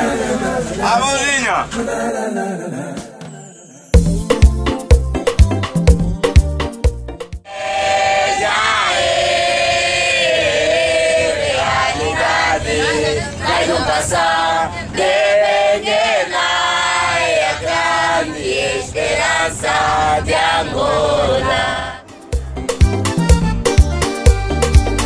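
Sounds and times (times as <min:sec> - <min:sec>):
bus rumble: 0:00.0 - 0:02.9, 0:07.5 - 0:25.0
group singing unaccompanied: 0:00.0 - 0:03.8, 0:07.5 - 0:22.2.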